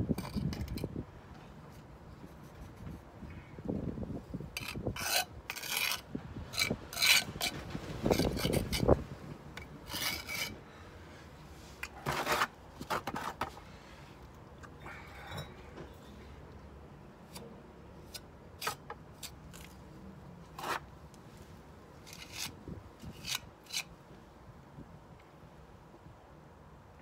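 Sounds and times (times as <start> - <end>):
trowel scraping mortar: 4.6 - 9.0, 9.6 - 10.6, 11.8 - 13.6, 18.0 - 19.8, 20.5 - 20.9, 22.0 - 23.9.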